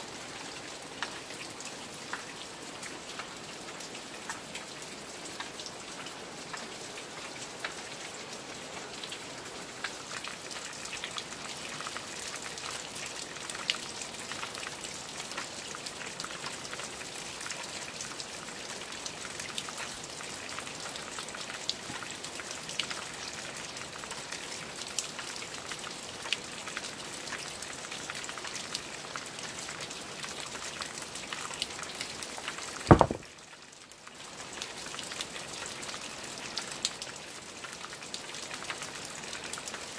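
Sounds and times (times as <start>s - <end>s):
steady rain with ticking drops: 0.0s - 39.9s
heavy low thud: 32.9s - 33.2s.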